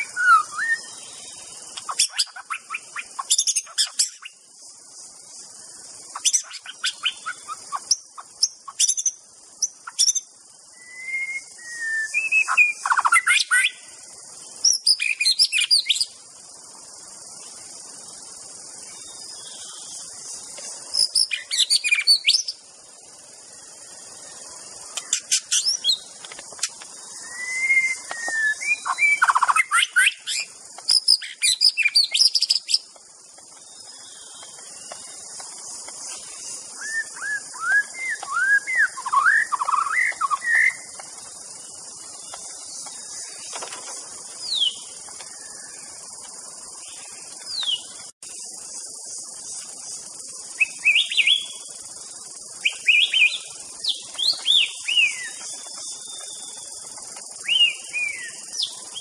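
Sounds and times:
songbird whistling: 0.0s - 1.1s, 8.7s - 13.8s, 27.2s - 32.8s, 36.8s - 40.9s
high-pitched hiss: 0.0s - 59.0s.

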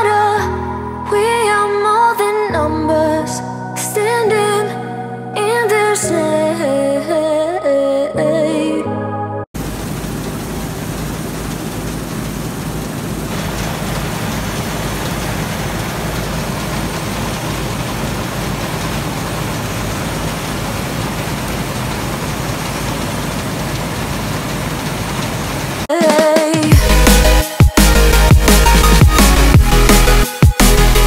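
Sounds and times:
combine harvester running: 9.6s - 25.9s.

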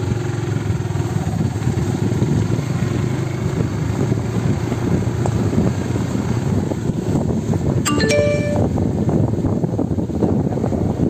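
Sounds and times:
motorcycle engine running: 0.0s - 7.7s.

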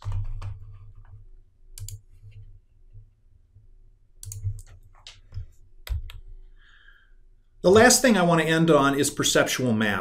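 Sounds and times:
mouse and keyboard clicks: 1.8s - 2.0s, 4.2s - 6.2s.

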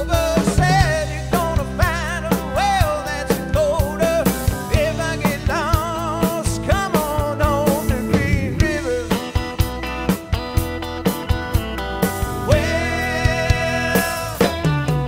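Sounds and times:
person singing: 0.0s - 9.8s, 12.3s - 15.0s
rock music: 0.0s - 15.0s
steady drum beat: 0.0s - 15.0s.

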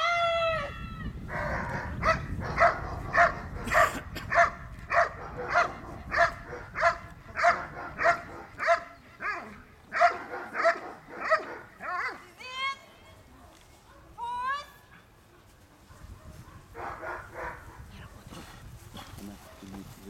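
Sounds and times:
dog barking: 1.3s - 12.2s, 13.9s - 14.2s, 15.4s - 17.9s, 19.4s - 19.8s.

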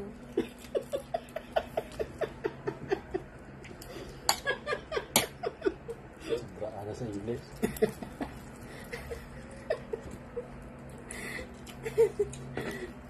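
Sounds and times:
person laughing: 0.4s - 3.3s.

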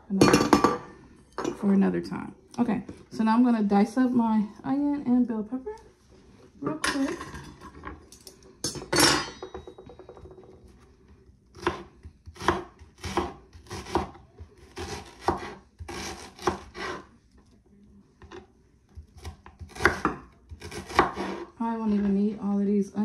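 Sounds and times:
knife chopping on wooden board: 11.6s - 17.0s, 19.0s - 21.5s.

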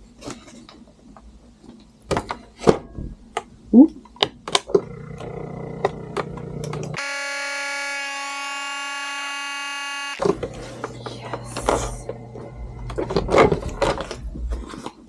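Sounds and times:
vacuum sealer pump humming: 4.8s - 13.6s
shrill alarm-like buzz: 7.0s - 10.2s.

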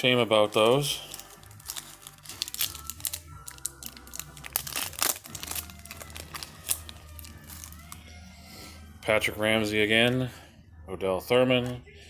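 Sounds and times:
foil wrapper crinkling and tearing: 0.4s - 8.0s.

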